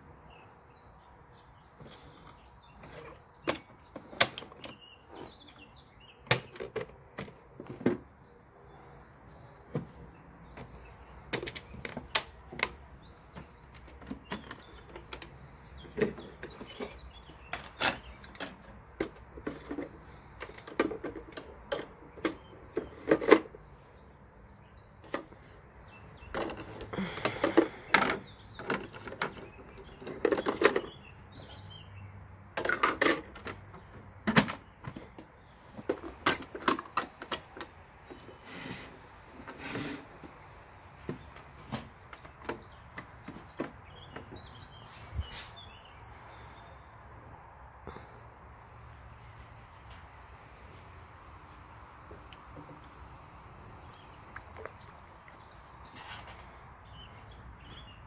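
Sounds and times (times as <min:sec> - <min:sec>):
faint birds chirping: 0:00.0 - 0:58.0
plastic dishes rattling in rack: 0:06.3 - 0:08.1, 0:09.8 - 0:23.6, 0:26.2 - 0:31.6, 0:32.6 - 0:35.2, 0:35.8 - 0:40.5
plastic toy door shutting: 0:34.2 - 0:34.6.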